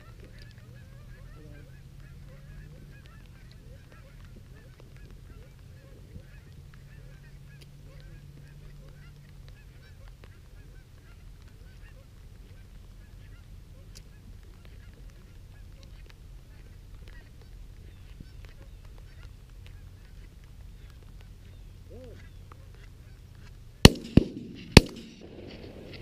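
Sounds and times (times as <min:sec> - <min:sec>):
geese honking: 0:00.0 - 0:26.0
steady low rumble: 0:05.2 - 0:26.0.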